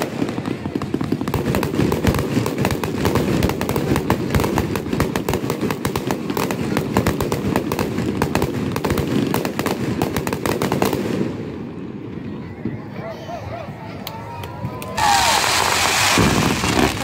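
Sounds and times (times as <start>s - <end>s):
fireworks bursting and crackling: 0.0s - 13.0s, 13.7s - 17.0s.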